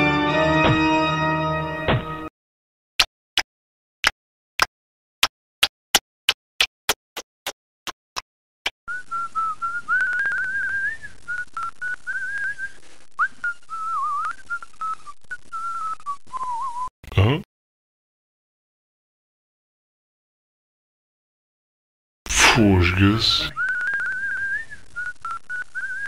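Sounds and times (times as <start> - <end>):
person whistling a tune: 8.9 - 16.9, 23.6 - 26.0.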